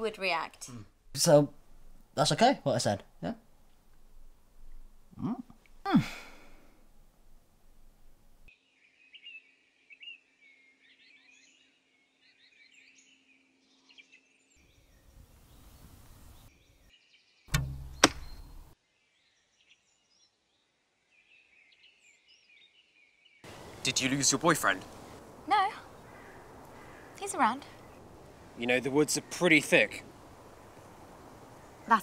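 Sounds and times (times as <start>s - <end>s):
birds singing: 8.6s - 32.0s
bow shot cracks: 17.5s - 18.8s.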